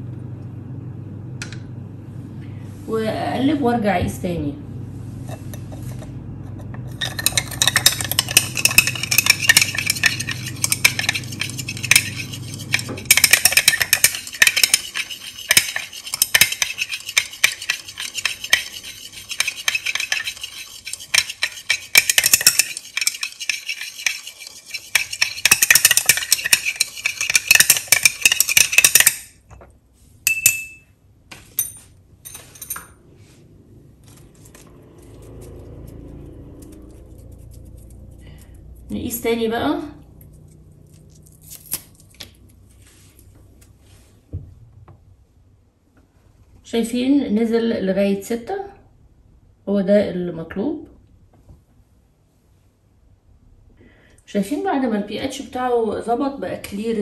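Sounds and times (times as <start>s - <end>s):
glass rod clinking in beaker: 30.3s - 30.9s.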